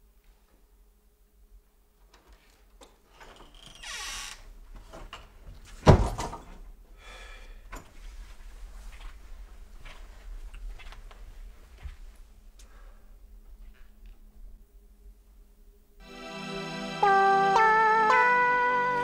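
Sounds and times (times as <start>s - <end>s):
front door opening and shutting: 2.1s - 6.6s
faint footsteps: 7.9s - 14.6s.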